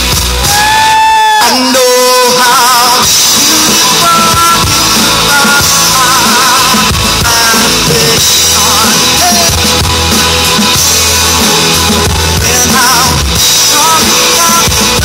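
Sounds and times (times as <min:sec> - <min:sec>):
live rock band playing: 0:00.0 - 0:15.0
wavering lead melody: 0:03.5 - 0:15.0.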